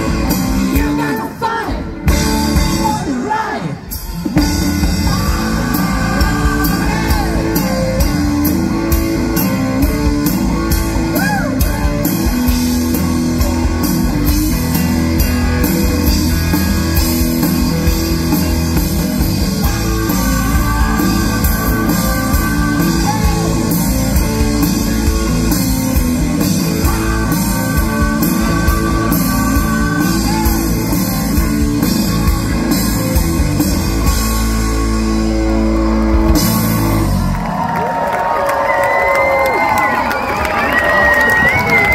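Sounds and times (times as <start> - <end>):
drum kit: 0.0 - 1.3, 1.9 - 37.8
person singing: 0.0 - 2.0, 4.8 - 8.2, 27.2 - 31.1
electric guitar: 0.0 - 41.9.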